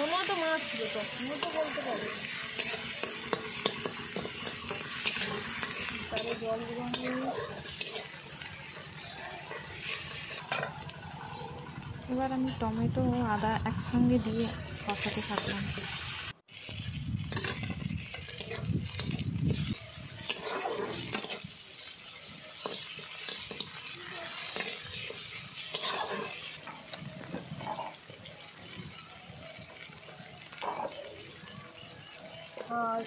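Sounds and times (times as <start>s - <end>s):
food sizzling in oil: 0.0s - 33.0s
spatula scraping a pan: 0.7s - 10.8s, 17.3s - 28.7s.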